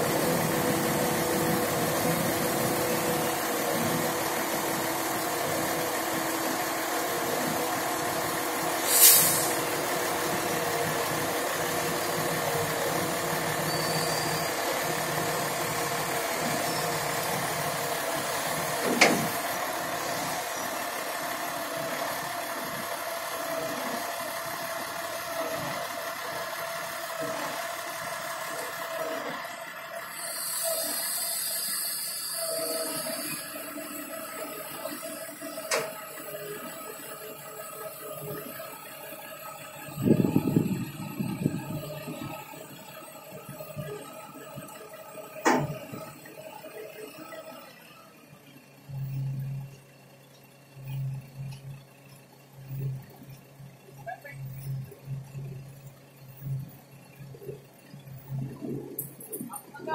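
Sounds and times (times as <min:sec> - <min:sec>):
heavy diesel engines running: 0:00.0 - 0:59.9
loud hiss of air: 0:08.8 - 0:09.9, 0:30.1 - 0:33.6.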